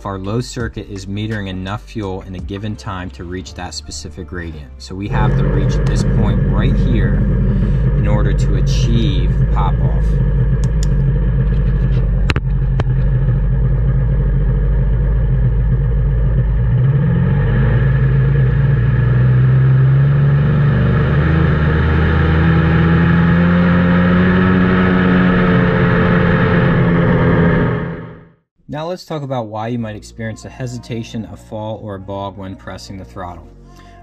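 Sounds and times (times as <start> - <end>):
jet ski engine revving: 4.9 - 28.3.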